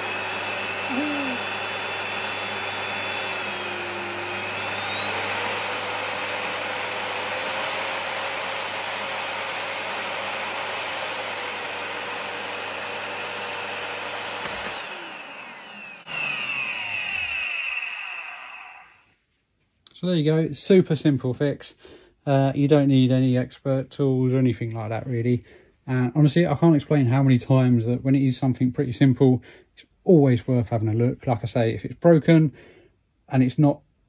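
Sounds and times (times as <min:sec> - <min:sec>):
vacuum cleaner motor whine: 0:00.0 - 0:19.0.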